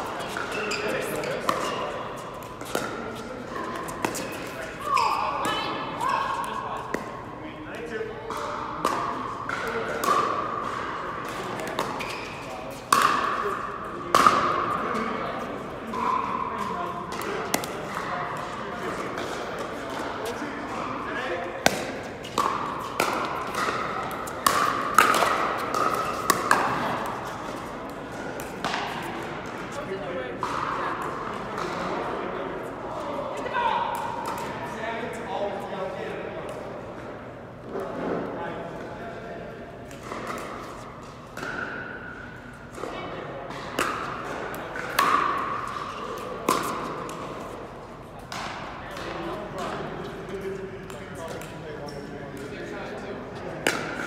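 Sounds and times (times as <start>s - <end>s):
paddles hitting plastic ball: 12.8s - 13.5s, 21.6s - 29.6s.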